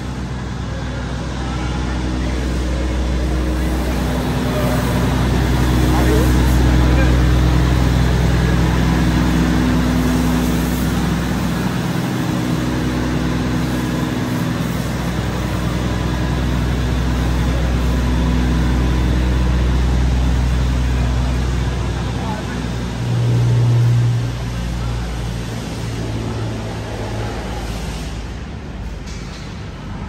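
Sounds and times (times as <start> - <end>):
engine idling: 0.0 - 30.0
pressure washer spraying water: 2.3 - 20.3.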